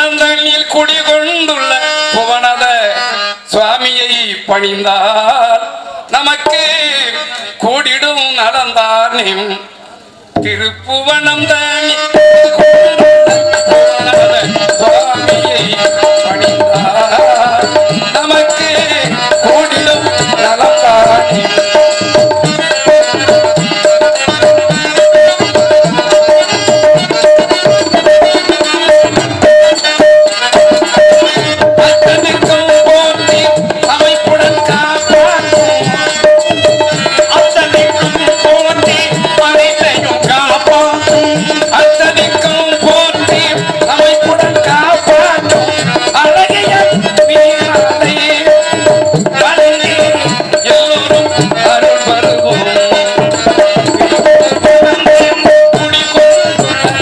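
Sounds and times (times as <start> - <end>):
hand drums: 11.3 - 57.0
wavering melody: 12.1 - 57.0.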